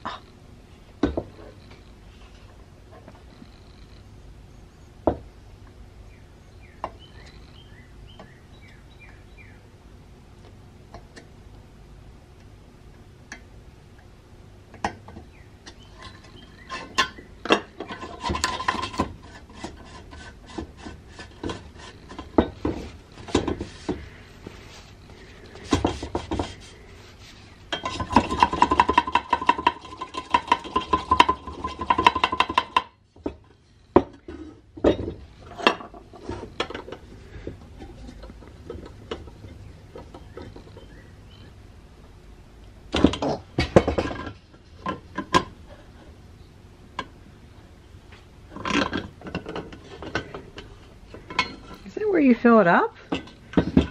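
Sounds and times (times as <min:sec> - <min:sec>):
metal clinks and scrapes: 0:48.5 - 0:52.0.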